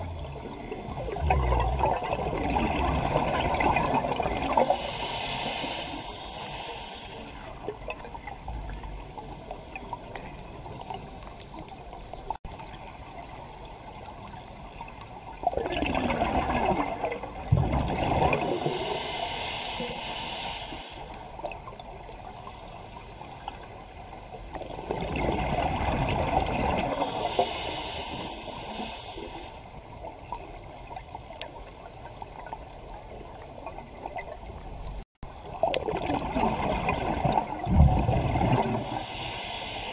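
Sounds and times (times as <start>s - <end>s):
bubbles gurgling underwater: 0.0s - 4.8s, 15.3s - 18.8s, 24.5s - 27.2s, 35.4s - 39.0s
low underwater hiss: 0.0s - 12.3s, 17.7s - 25.2s, 26.0s - 35.6s, 37.4s - 39.9s.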